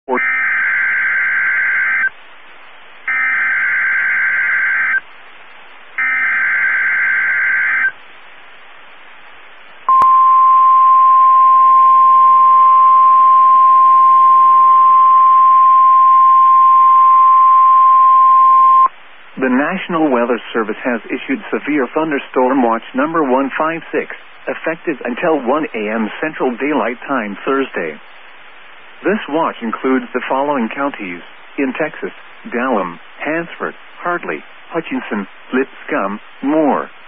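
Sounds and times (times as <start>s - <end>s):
steady warning alarm tone: 0.1s - 2.1s, 3.1s - 5.1s, 6.0s - 8.0s, 9.9s - 18.9s
harsh data tones: 0.1s - 18.9s
radio hiss: 17.6s - 37.0s.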